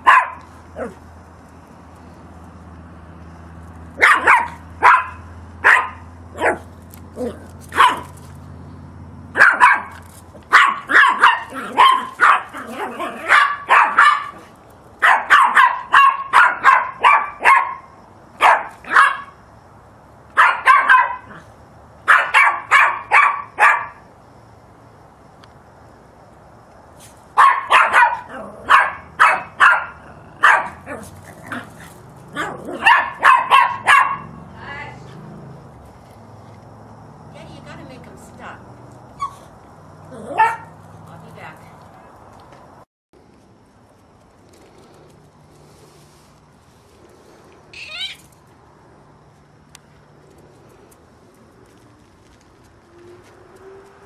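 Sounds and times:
small dog yapping: 0:00.0 - 0:01.0, 0:04.0 - 0:08.2, 0:09.3 - 0:17.8, 0:20.4 - 0:21.4, 0:22.1 - 0:23.9, 0:27.4 - 0:34.4, 0:39.2 - 0:39.5, 0:40.1 - 0:40.8, 0:47.7 - 0:48.3.

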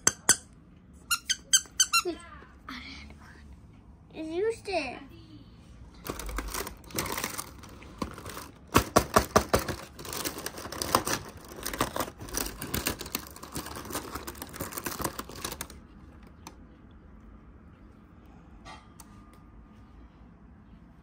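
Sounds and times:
packaging crinkling and rustling: 0:06.0 - 0:16.4.

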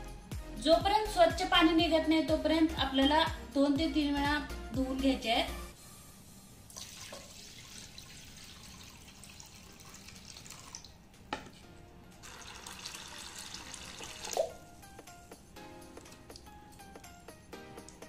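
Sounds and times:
faint background music: 0:00.0 - 0:18.0
water pouring into steel bowl: 0:06.7 - 0:10.9, 0:12.2 - 0:14.6.

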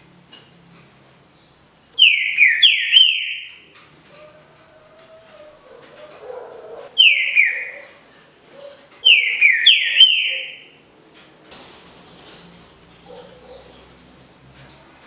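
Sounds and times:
bird whistling descending notes: 0:07.0 - 0:07.8.

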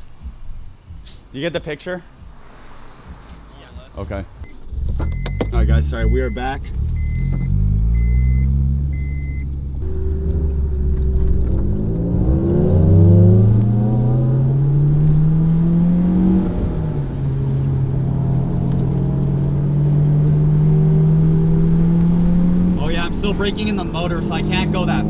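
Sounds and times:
short electronic beeps: 0:04.4 - 0:09.5
car engine accelerating: 0:04.4 - 0:25.0.

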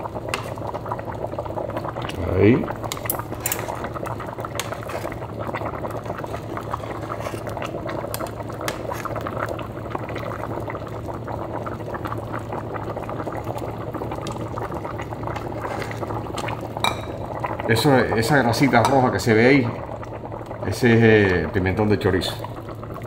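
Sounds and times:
stew bubbling: 0:00.0 - 0:23.0.

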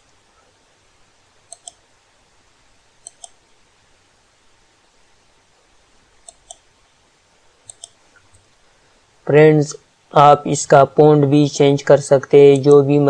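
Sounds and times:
computer mouse clicks: 0:01.5 - 0:01.8, 0:03.0 - 0:03.4, 0:06.2 - 0:06.7, 0:07.6 - 0:08.5.

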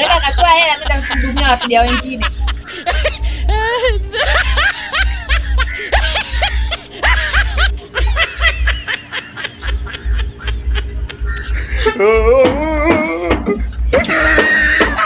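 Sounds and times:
rapid snickering laugh: 0:00.0 - 0:12.2, 0:12.9 - 0:15.0
music with thumping beat: 0:00.1 - 0:07.7, 0:10.8 - 0:15.0.

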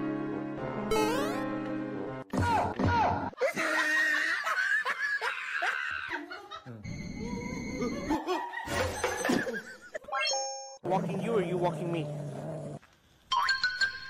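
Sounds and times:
background music: 0:00.0 - 0:03.3
person laughing: 0:03.4 - 0:06.8.

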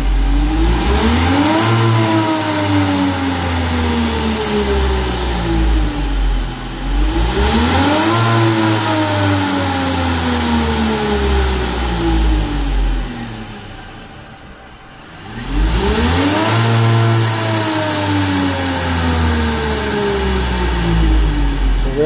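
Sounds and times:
electric motor whine: 0:00.0 - 0:14.1, 0:15.0 - 0:22.0.

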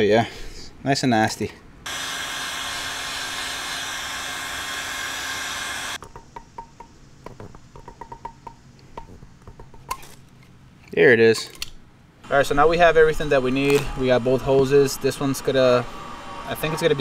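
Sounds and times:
heat gun blowing: 0:01.9 - 0:06.0.

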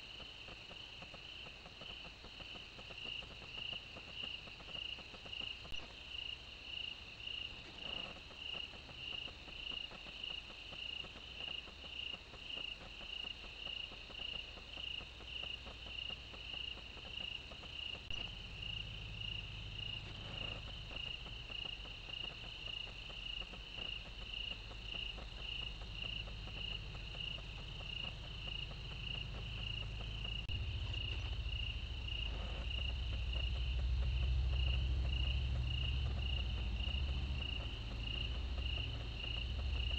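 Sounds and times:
crickets chirping: 0:00.0 - 0:39.9
low rumble: 0:24.6 - 0:39.9.

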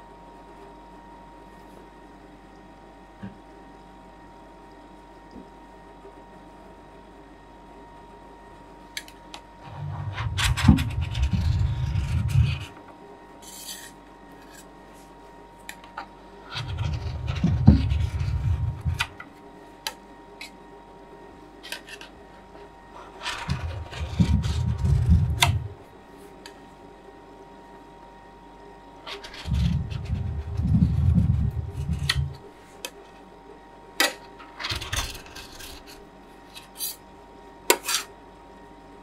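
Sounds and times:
spatula scraping metal plate: 0:09.6 - 0:12.8, 0:16.5 - 0:19.2, 0:23.2 - 0:25.8, 0:29.1 - 0:32.4.

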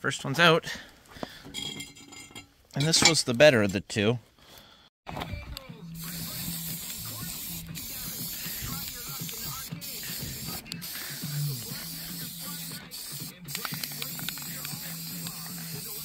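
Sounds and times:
spray paint can hissing: 0:05.9 - 0:16.0.

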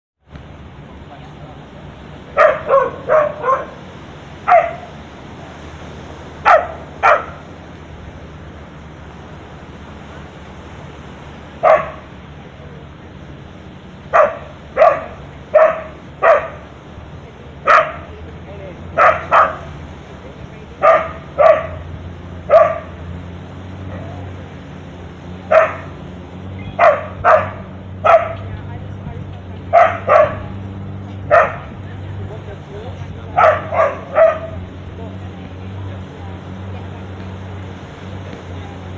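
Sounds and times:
dog barking: 0:02.3 - 0:03.8, 0:04.4 - 0:05.0, 0:06.4 - 0:07.4, 0:11.6 - 0:12.1, 0:14.1 - 0:16.7, 0:17.6 - 0:18.1, 0:19.0 - 0:19.7, 0:20.8 - 0:23.0, 0:25.5 - 0:26.0, 0:26.8 - 0:28.5, 0:29.7 - 0:30.6, 0:31.2 - 0:31.7, 0:33.3 - 0:34.6.

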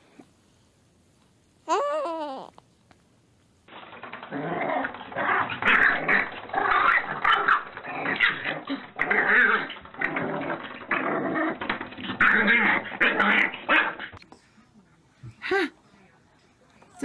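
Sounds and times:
puppy growling and whining: 0:04.2 - 0:14.2.

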